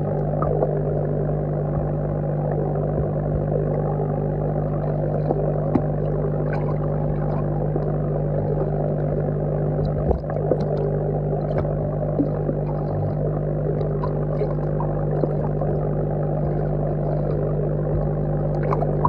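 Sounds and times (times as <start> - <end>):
aquarium air pump humming: 0.0 - 19.0
air bubbles clicking: 0.1 - 0.8, 4.9 - 19.0.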